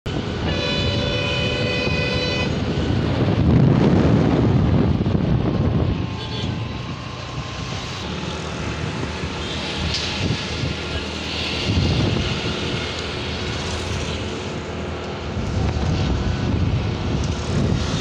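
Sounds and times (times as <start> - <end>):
highway traffic road noise: 0.0 - 18.0
low rumble of passing traffic: 0.1 - 18.0
multi-tone vehicle horn: 0.4 - 2.7, 6.1 - 6.8.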